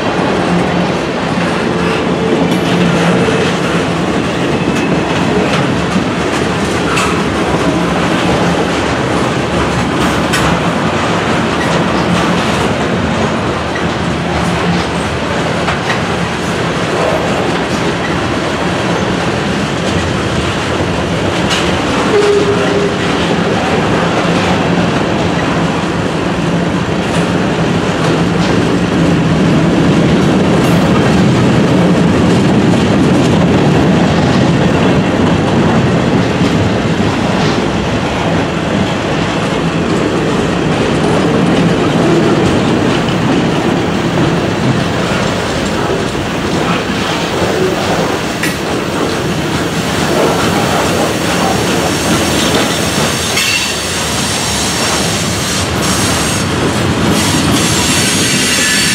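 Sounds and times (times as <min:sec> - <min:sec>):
clickety-clack over rail joints: 0:00.0 - 0:58.9
freight train wheels rumbling: 0:00.0 - 0:58.9
train wheel squeal: 0:53.2 - 0:56.5, 0:57.1 - 0:58.9.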